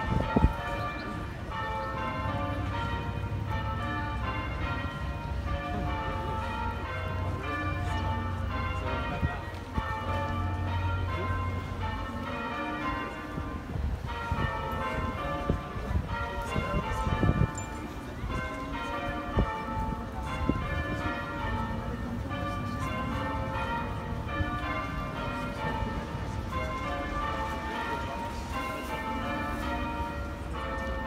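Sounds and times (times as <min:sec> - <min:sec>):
church bells ringing: 0:00.0 - 0:31.0.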